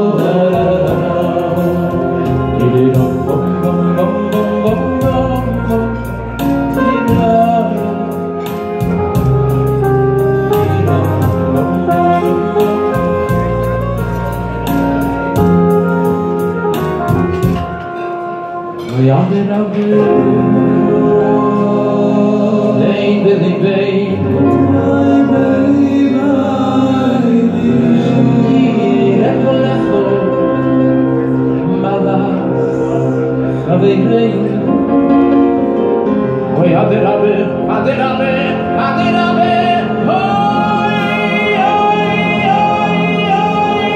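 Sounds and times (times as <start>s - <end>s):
bass line: 0.0s - 17.8s, 20.0s - 43.9s
electronic keyboard: 0.0s - 43.9s
male choir singing: 19.9s - 30.5s, 38.9s - 43.9s.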